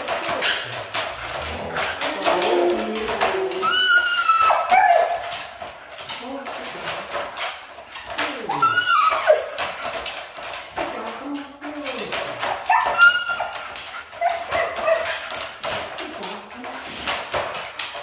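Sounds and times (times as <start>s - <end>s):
crate clicks and rattles: 0.0s - 18.0s
dog whining and howling: 0.3s - 5.6s, 8.1s - 9.8s, 12.4s - 15.4s.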